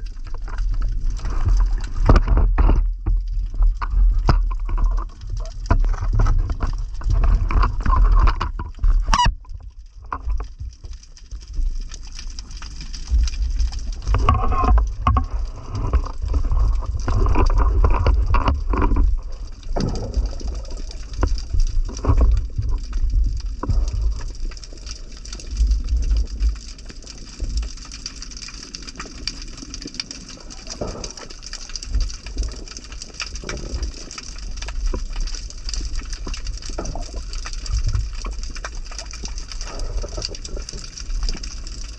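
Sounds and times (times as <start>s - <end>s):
bubbling: 0.0s - 41.9s
underwater rumble of moving water: 0.0s - 41.9s
underwater knocks: 1.2s - 10.9s, 13.1s - 24.3s.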